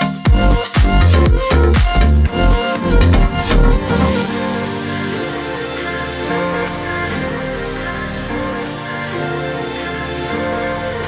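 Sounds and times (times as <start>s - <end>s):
trap beat music: 0.0s - 10.2s
deep bass kicks: 0.3s - 4.2s.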